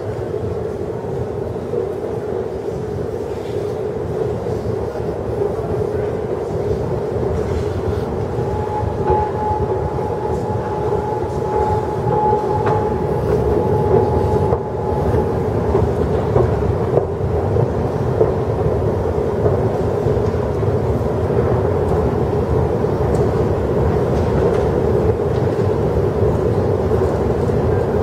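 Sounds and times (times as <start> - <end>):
thin steady whine: 5.4 - 17.7.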